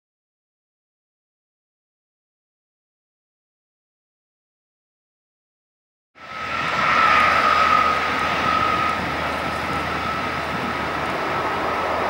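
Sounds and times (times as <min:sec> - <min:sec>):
jet engines taxiing: 0:06.2 - 0:12.0.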